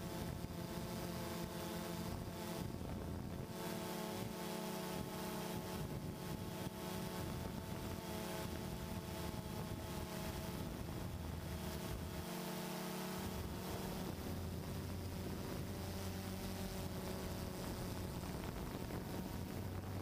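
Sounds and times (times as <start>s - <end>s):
drone propellers whirring: 0.0s - 20.0s
wind hiss on microphone: 0.0s - 20.0s.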